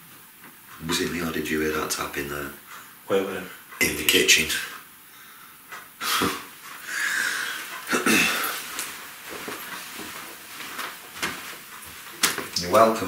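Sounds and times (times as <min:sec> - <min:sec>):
faint shuffling: 0:06.3 - 0:13.0.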